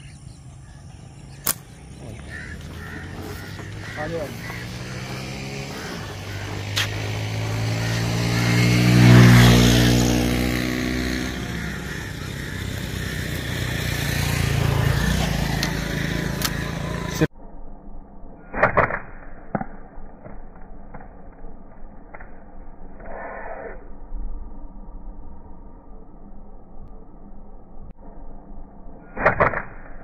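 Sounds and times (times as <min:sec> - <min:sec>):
vehicle driving past: 0:01.0 - 0:17.3
short crack: 0:01.4 - 0:01.7
slingshot bands snapping: 0:01.4 - 0:01.7.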